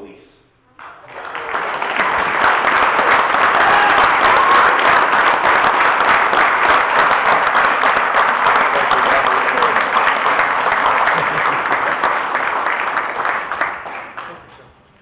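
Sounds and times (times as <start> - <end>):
audience applauding: 0.8 - 14.8.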